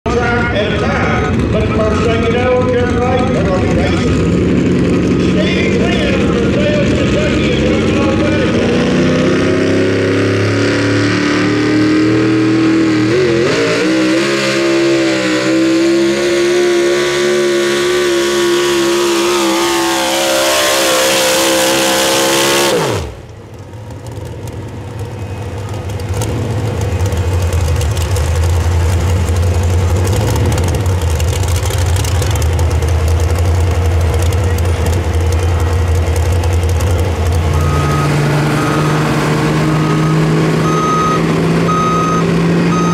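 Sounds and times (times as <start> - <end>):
lower steady engine: 0.1 - 13.8, 20.9 - 42.9
pulling truck engine at full throttle: 0.1 - 42.9.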